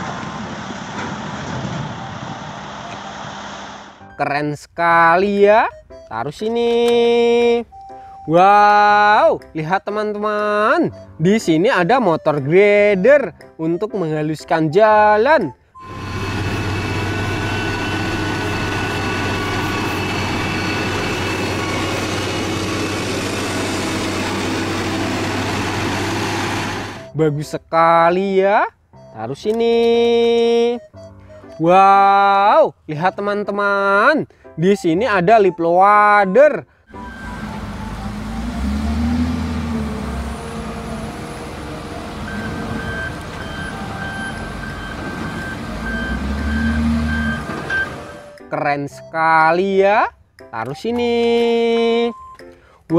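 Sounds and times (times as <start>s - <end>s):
reversing alarm beeping: 5.4s - 6.2s, 7.7s - 8.4s, 15.8s - 26.0s, 26.6s - 27.2s, 36.9s - 49.2s, 52.0s - 52.4s
heavy diesel engine running: 15.8s - 27.2s, 36.9s - 48.4s.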